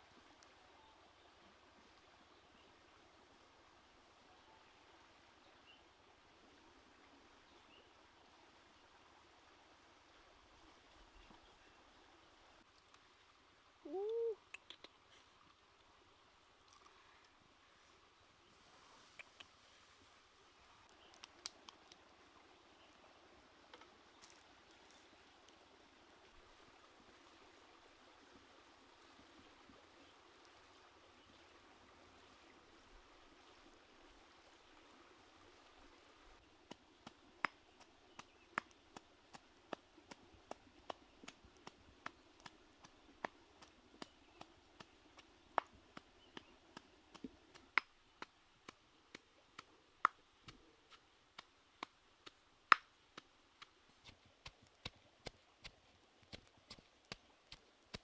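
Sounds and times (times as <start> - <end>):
sharp pops and crackles: 14.4 - 15.0, 20.8 - 22.0, 36.6 - 58.0.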